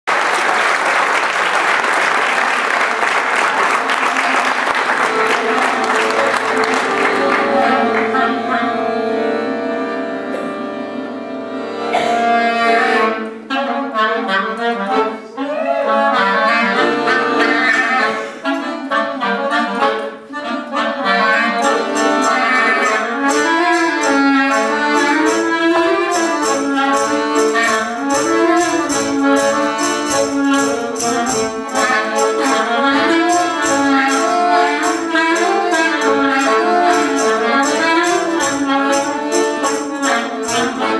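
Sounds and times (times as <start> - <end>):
accordion chords: 0.1 - 40.9
clarinet melody: 3.6 - 40.9
fast ticking beat: 21.4 - 40.9.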